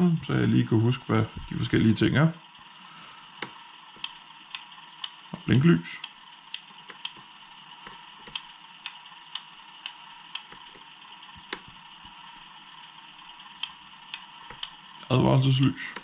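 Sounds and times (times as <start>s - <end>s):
turn-signal relay ticking: 3.3s - 12.2s, 12.8s - 16.0s.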